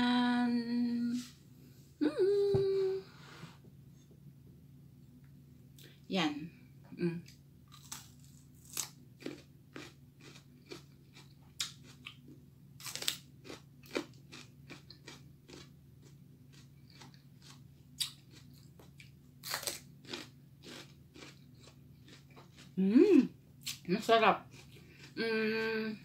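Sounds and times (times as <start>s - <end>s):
faint low hum: 0.0s - 26.0s
crunching bell pepper: 7.7s - 22.8s.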